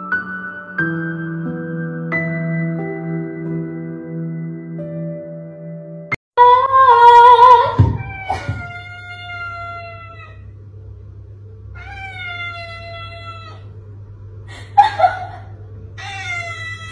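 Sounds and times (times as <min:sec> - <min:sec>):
cat meowing: 0:07.0 - 0:10.5, 0:11.8 - 0:13.7, 0:16.0 - 0:16.9.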